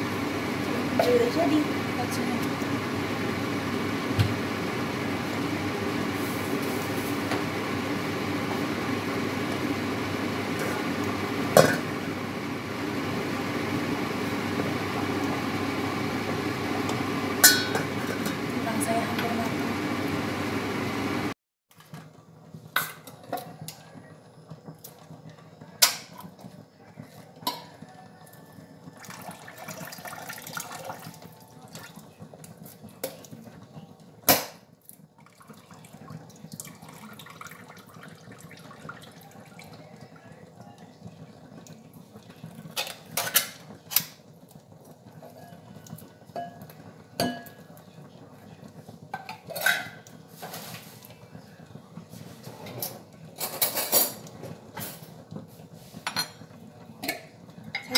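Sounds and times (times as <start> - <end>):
utensils and dishes clinking: 17.4 - 18.5, 42.7 - 44.2, 45.2 - 47.8, 49.1 - 50.8, 52.4 - 55.2, 56.0 - 57.9.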